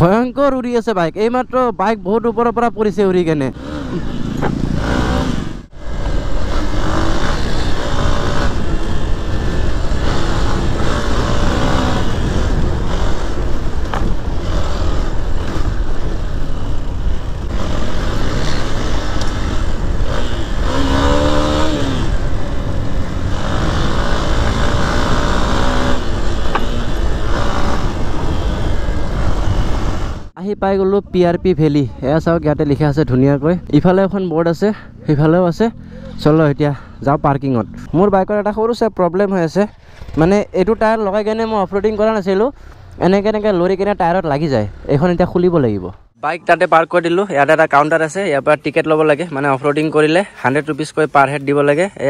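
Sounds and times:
motorcycle engine running: 0:03.5 - 0:30.3, 0:33.6 - 0:38.0.

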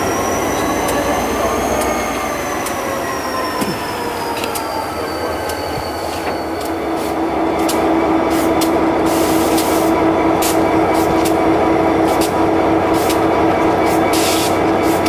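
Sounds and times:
steel wheels clacking on rails: 0:00.0 - 0:15.0
faint squeal sliding down in pitch: 0:00.1 - 0:06.8.

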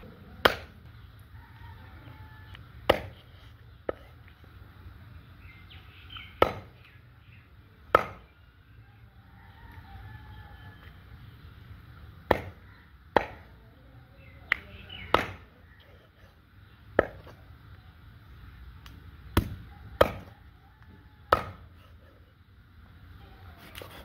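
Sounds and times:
cleaver chopping on wooden block: 0:00.4 - 0:00.8, 0:02.8 - 0:03.2, 0:06.4 - 0:06.8, 0:07.9 - 0:08.3, 0:12.2 - 0:13.5, 0:14.5 - 0:15.5, 0:19.4 - 0:20.3, 0:21.3 - 0:21.7.

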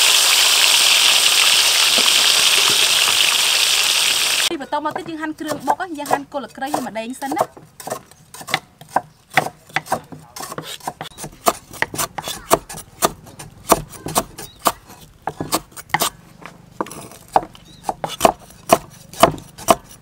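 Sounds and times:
cleaver chopping on wooden board: 0:04.9 - 0:20.0.

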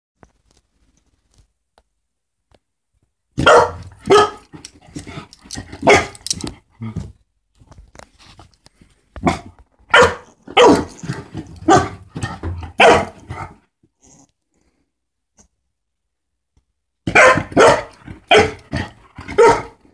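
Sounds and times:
puppy barking: 0:03.4 - 0:04.5, 0:05.8 - 0:06.2, 0:09.2 - 0:11.0, 0:11.6 - 0:12.0, 0:12.7 - 0:13.5, 0:17.1 - 0:19.8.

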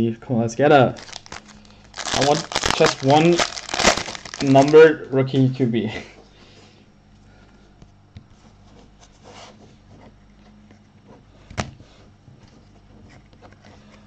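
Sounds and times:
low electrical hum: 0:00.0 - 0:14.0
trading cards rustling: 0:01.0 - 0:04.9.

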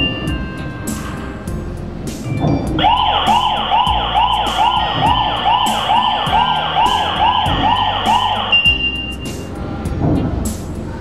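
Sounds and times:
electronic alarm siren wailing: 0:02.8 - 0:09.1.

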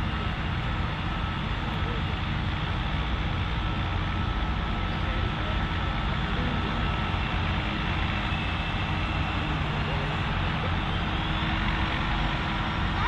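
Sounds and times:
tractor engine under heavy load: 0:00.0 - 0:13.0
faint high whine: 0:03.4 - 0:13.0.

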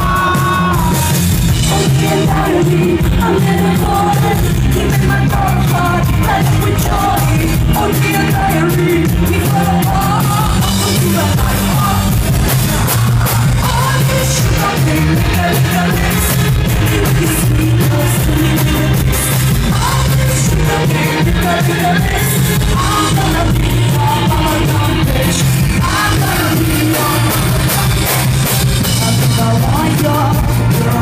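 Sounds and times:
live pop-rock band playing: 0:00.0 - 0:31.0
woman singing: 0:00.0 - 0:31.0.

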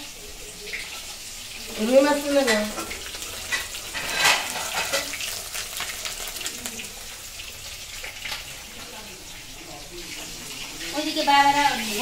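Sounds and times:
hissing kitchen noise: 0:00.0 - 0:12.0.

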